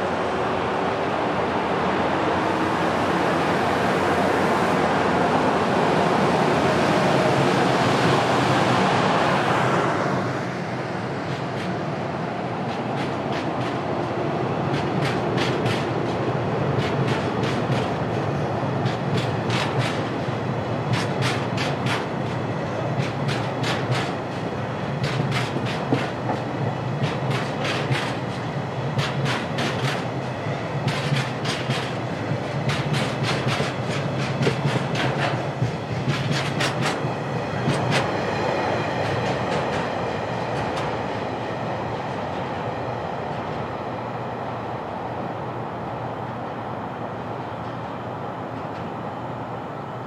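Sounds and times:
train rumble: 0:00.0 - 0:50.0
wheels clicking over rail joints: 0:20.9 - 0:28.4, 0:30.8 - 0:38.1.

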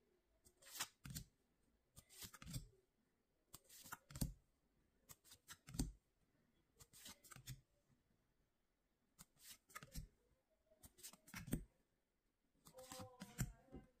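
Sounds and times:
trading cards rustling and clicking: 0:09.2 - 0:10.0.

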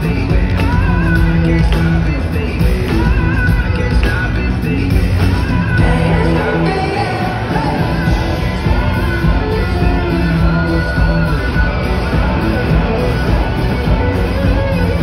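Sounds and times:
loud live pop music with heavy bass: 0:00.0 - 0:15.0.

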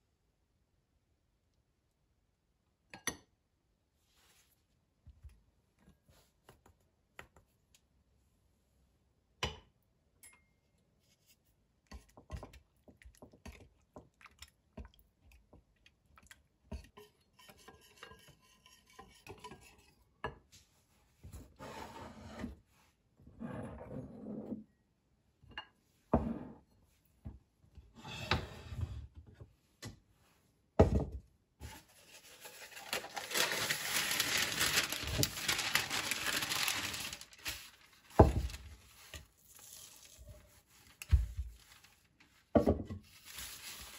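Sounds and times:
baking paper rustling: 0:31.6 - 0:43.9.

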